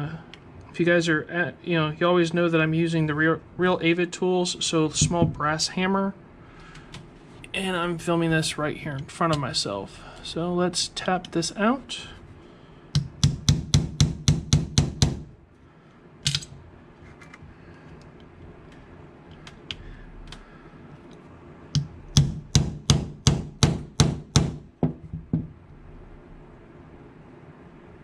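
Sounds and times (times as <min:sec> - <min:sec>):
hammer tapping metal punch: 0:13.0 - 0:15.3, 0:21.8 - 0:25.5.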